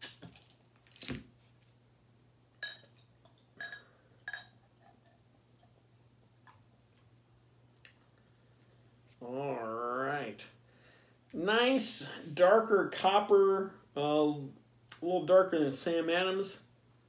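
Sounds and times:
glass clinks: 3.6 - 4.6.

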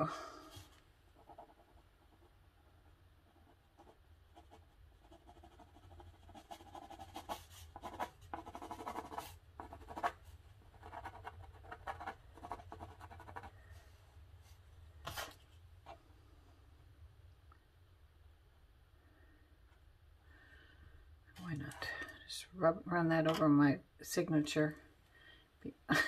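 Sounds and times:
faint low hum: 0.0 - 26.0
pencil scratching on rough paper: 0.4 - 13.6.

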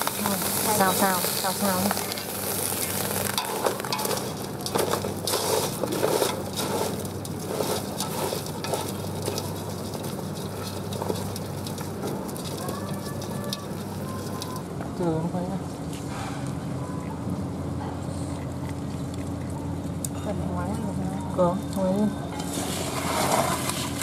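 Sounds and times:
crabs sizzling in a hot pot: 0.0 - 15.6, 19.7 - 24.0.

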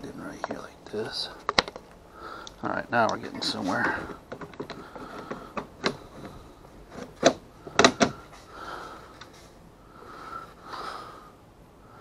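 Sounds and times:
plastic clicks and knocks: 1.5 - 1.8, 4.1 - 8.2.

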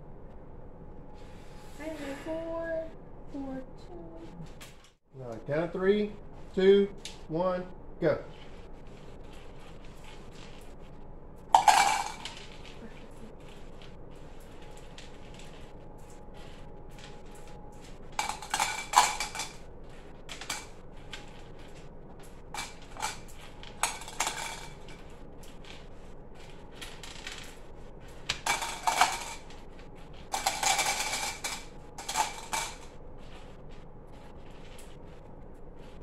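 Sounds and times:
candies rattling into plastic cups: 11.5 - 15.6, 18.1 - 19.7, 20.3 - 27.7, 28.3 - 32.9.

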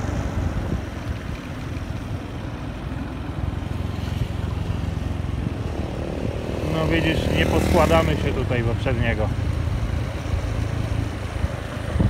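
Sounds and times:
wind rushing over microphone: 0.0 - 2.3, 5.2 - 7.9, 9.6 - 12.0
motorbike engine and road rumble: 0.0 - 12.0.

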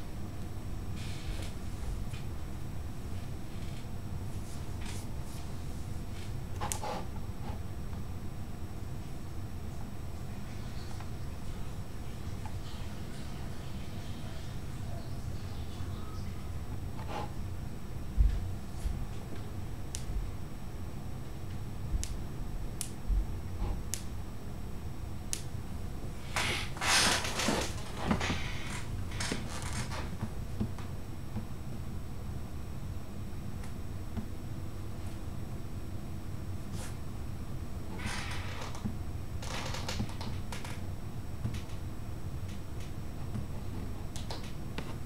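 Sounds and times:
steady low hum: 0.0 - 45.0
rustling noise: 3.2 - 7.6, 36.6 - 37.0.

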